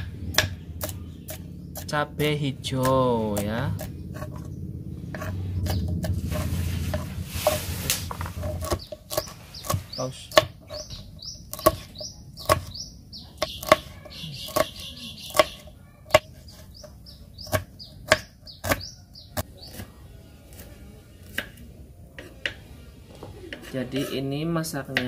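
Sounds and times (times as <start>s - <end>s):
knife chopping on wooden board: 0.0s - 2.0s, 5.1s - 12.8s, 13.4s - 19.9s, 20.5s - 21.6s
bird chirping: 0.0s - 6.2s, 8.0s - 20.1s.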